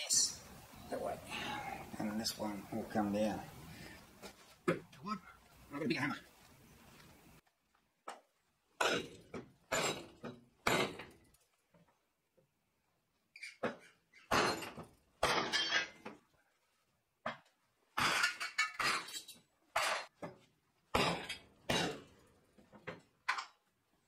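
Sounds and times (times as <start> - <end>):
timber striking steel rebar: 8.8 - 11.2.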